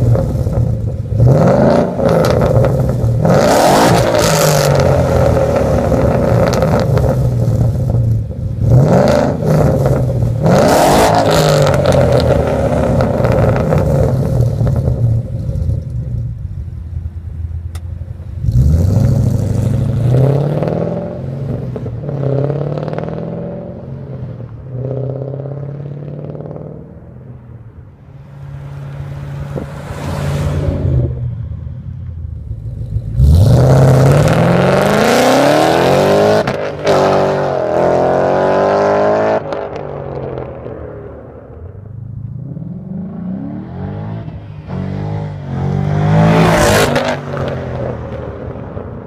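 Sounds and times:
car engine accelerating hard: 32.4s - 40.6s, 42.2s - 49.0s.

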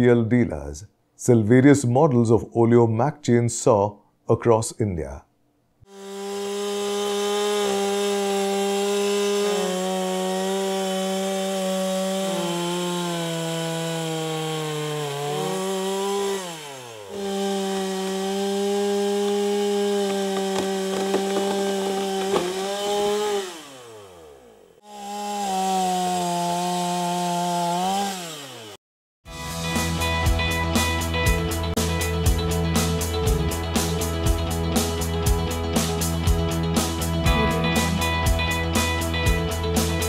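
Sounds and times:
chainsaw cutting wood: 5.8s - 28.8s, 36.8s - 40.0s.

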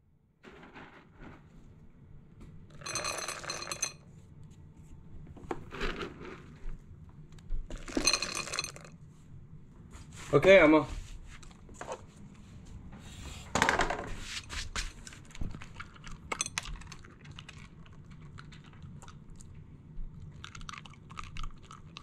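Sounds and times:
dog crunching dry kibble: 14.8s - 19.5s, 20.1s - 22.0s.

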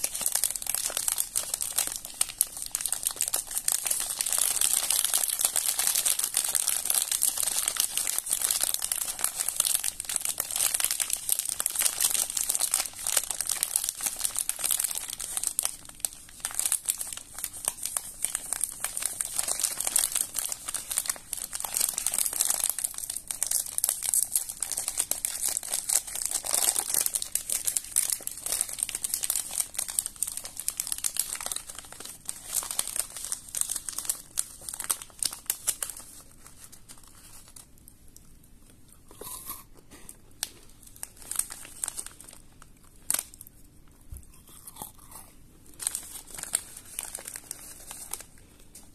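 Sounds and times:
wrapper tearing: 0.0s - 37.8s, 40.4s - 43.5s, 45.8s - 48.9s
plastic wrapper crinkling: 0.0s - 38.3s, 40.1s - 44.8s, 45.6s - 48.9s.

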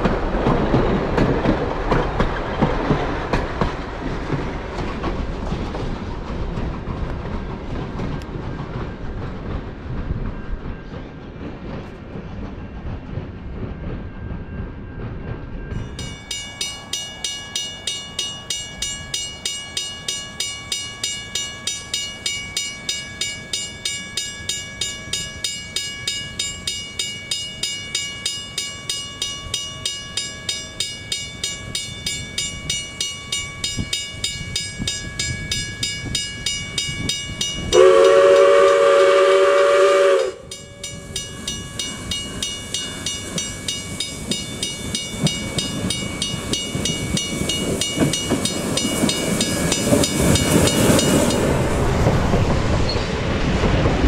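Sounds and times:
steam locomotive exhaust beating: 0.0s - 54.0s
train wheels rumbling: 0.0s - 54.0s
steam whistle blast: 37.7s - 40.9s.

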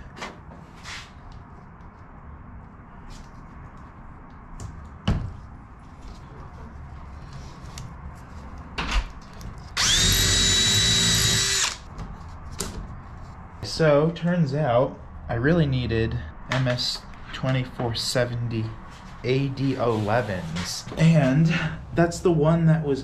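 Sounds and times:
cordless drill whining: 9.8s - 11.8s.

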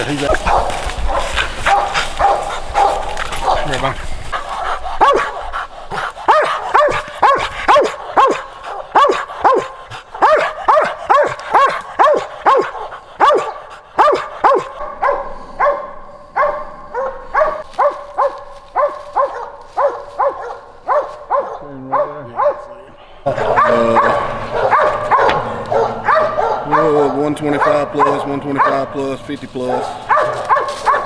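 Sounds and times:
dog barking: 0.3s - 29.0s, 29.6s - 31.0s.

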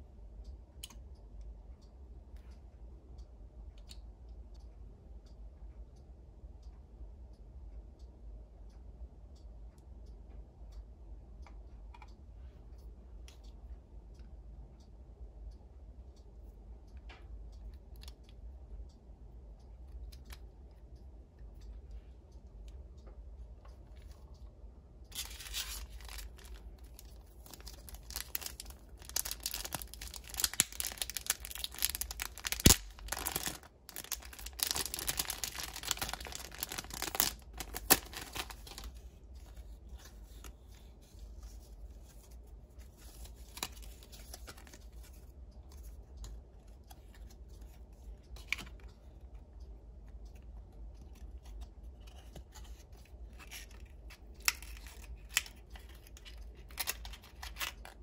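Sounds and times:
light clicks and taps: 16.2s - 58.0s
packaging tearing and crinkling: 25.2s - 26.6s, 27.2s - 38.9s.

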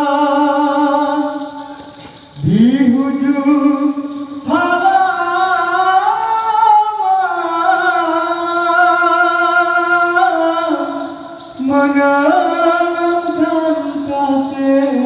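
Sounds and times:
man singing through a microphone: 0.0s - 15.0s.

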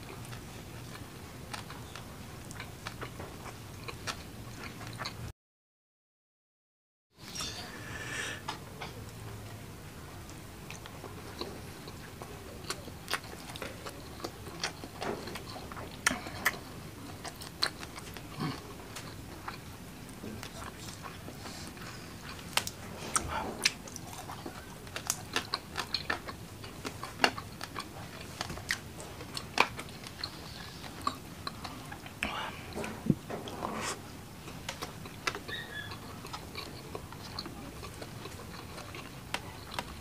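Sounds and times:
person chewing with mouth smacks: 20.4s - 40.0s.

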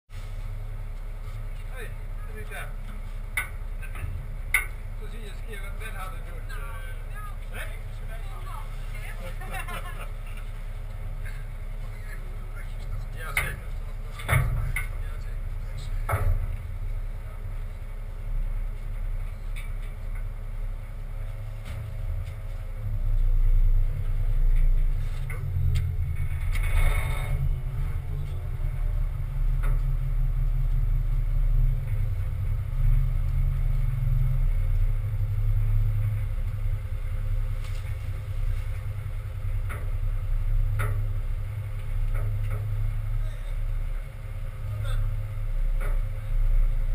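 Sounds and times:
truck engine rumble: 0.1s - 46.9s
knocks and rattles: 13.2s - 17.1s, 23.1s - 44.1s.

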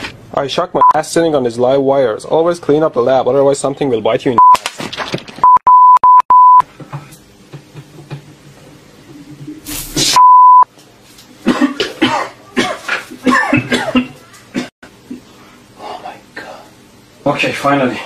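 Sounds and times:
censor bleep: 5.5s - 6.6s, 10.2s - 10.6s
man coughing and spluttering: 11.4s - 15.2s.

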